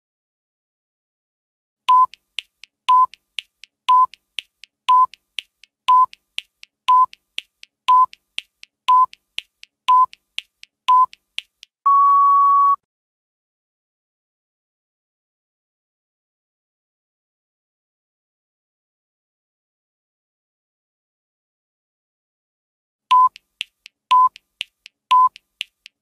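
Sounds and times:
short electronic beeps: 1.9s - 2.2s, 2.9s - 3.2s, 3.9s - 4.2s, 4.9s - 5.2s, 5.9s - 6.2s, 6.9s - 7.2s, 7.9s - 8.2s, 8.9s - 9.2s, 9.9s - 10.2s, 10.9s - 11.2s, 11.8s - 12.8s, 23.1s - 23.4s, 24.1s - 24.4s, 25.1s - 25.4s
faint ticks: 1.9s - 11.8s, 23.1s - 26.0s
longer higher beep: 11.9s - 12.8s.

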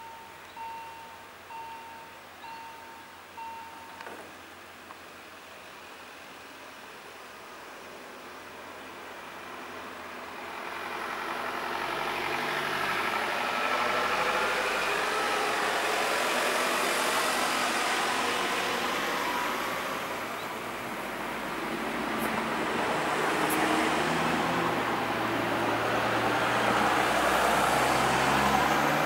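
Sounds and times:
car approaching: 8.0s - 29.0s
van driving past: 9.4s - 29.0s.

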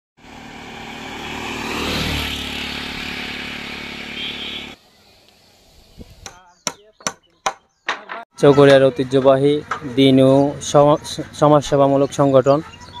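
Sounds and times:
motorcycle engine passing by: 0.2s - 4.8s.

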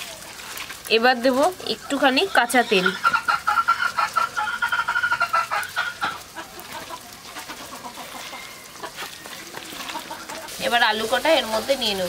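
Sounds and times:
hen clucking: 1.6s - 10.6s.

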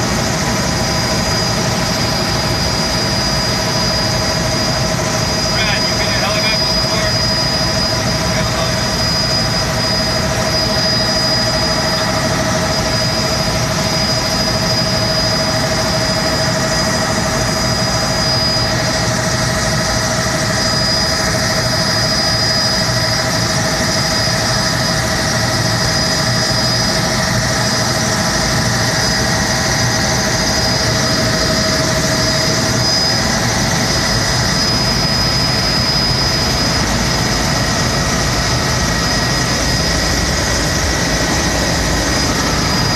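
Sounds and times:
helicopter engine and rotor noise: 0.0s - 42.9s
high whine: 0.0s - 42.9s.

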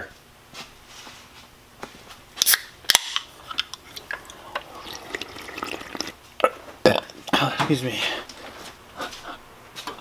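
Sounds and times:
soft sipping: 3.8s - 6.2s.

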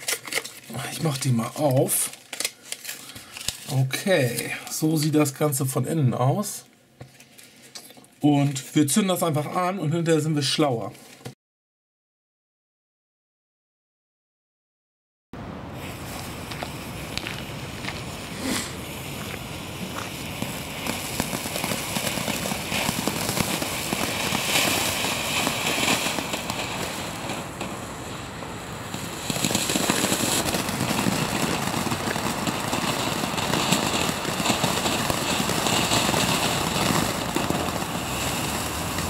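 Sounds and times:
firework fountain hissing and crackling: 0.0s - 5.3s, 15.4s - 39.0s.

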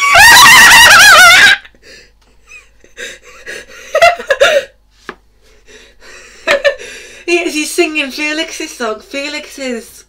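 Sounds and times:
woman shrieking with laughter: 0.0s - 1.8s.

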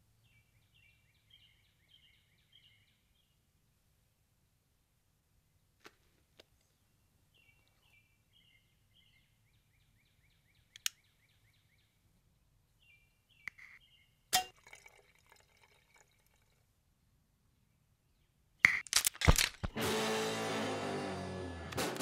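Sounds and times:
songbird chirping: 0.0s - 3.9s, 6.4s - 14.5s, 17.0s - 18.8s
sharp crack: 18.7s - 19.9s.

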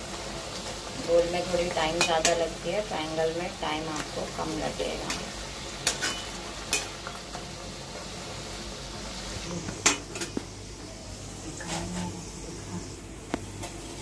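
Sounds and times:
deep-frying sizzle in oil: 0.0s - 14.0s.

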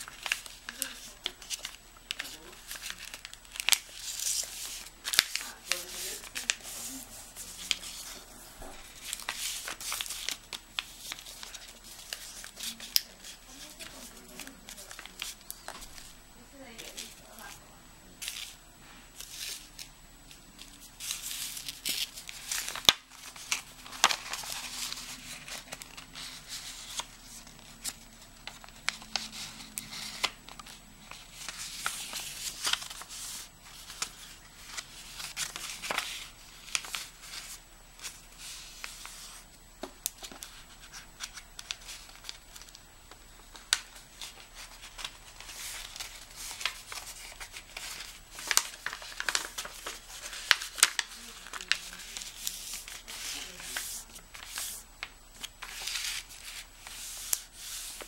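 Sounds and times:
paper crinkling and rustling: 0.0s - 17.6s, 19.2s - 58.0s
paper folds clicking: 21.0s - 27.7s, 28.4s - 38.1s, 39.9s - 58.0s.

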